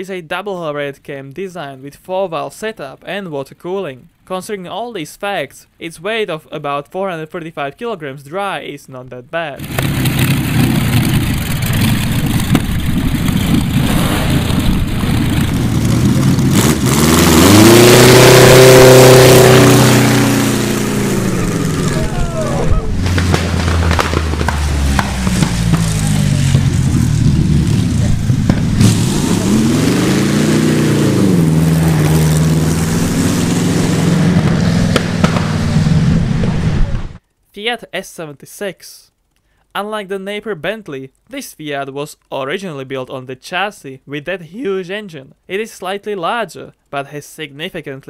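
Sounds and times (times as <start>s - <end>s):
aero engine revving: 9.6s - 37.2s.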